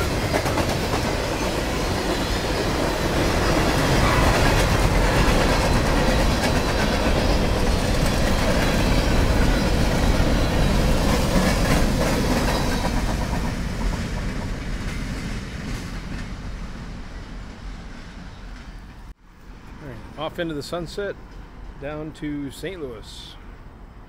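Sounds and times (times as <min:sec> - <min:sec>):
train wheels clattering on rails: 0:00.0 - 0:19.1.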